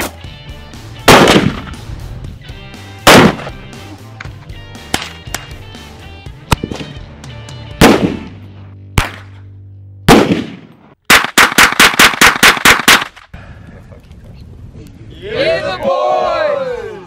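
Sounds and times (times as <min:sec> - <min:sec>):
background music: 0:00.0 - 0:10.1
rifle gunshots: 0:01.1 - 0:01.8, 0:03.0 - 0:03.6, 0:07.8 - 0:08.4, 0:10.1 - 0:13.2
rapid rifle shots: 0:03.1 - 0:03.5, 0:10.1 - 0:13.2.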